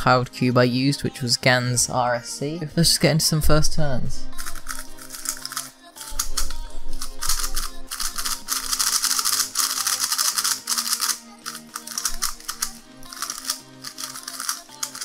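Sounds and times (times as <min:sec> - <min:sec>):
background music: 0:00.0 - 0:15.0
plastic puzzle cube clicking: 0:04.4 - 0:15.0.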